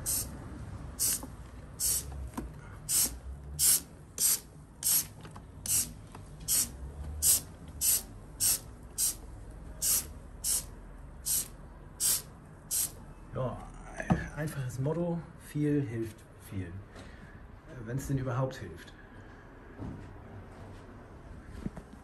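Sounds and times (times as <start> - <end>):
spray bottle squirts: 0.0 - 0.3, 1.0 - 2.1, 2.9 - 9.2, 9.8 - 10.7, 11.3 - 13.0.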